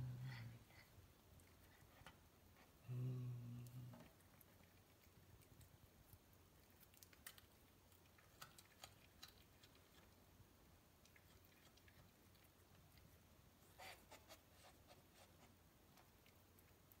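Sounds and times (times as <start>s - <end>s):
crunch: 4.1s - 10.2s
cat chewing clicks: 4.4s - 10.2s.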